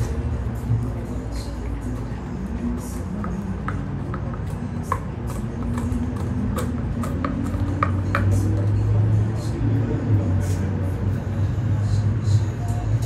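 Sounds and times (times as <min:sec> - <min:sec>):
tongue knocking paper cup: 0:01.9 - 0:08.7.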